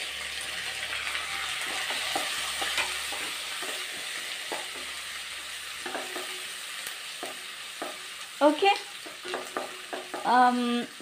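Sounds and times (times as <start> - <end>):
food sizzling in hot oil: 0.0 - 11.0
spatula scraping pan: 0.5 - 8.2, 8.9 - 10.6.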